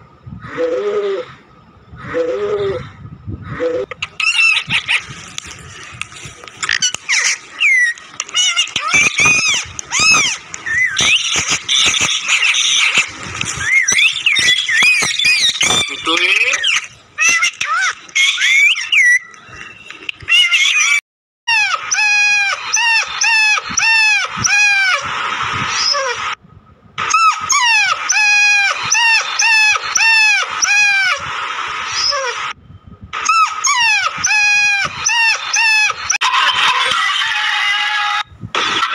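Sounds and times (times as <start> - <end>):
parrots whistling and screeching: 3.6 - 5.9, 6.6 - 26.4, 27.0 - 32.6, 33.2 - 38.2
dog yelping: 27.0 - 31.2, 33.2 - 37.1.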